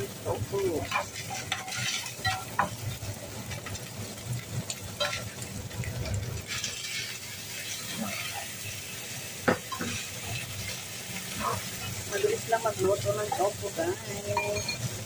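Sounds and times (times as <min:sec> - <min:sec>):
food sizzling hiss: 0:00.0 - 0:15.0
spatula scraping frying pan: 0:00.7 - 0:03.8, 0:04.7 - 0:15.0.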